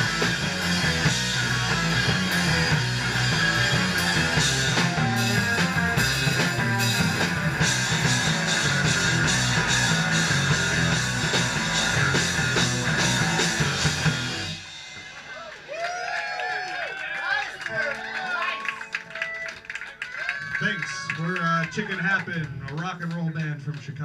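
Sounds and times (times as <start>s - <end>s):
live rock band playing: 0.0s - 15.7s.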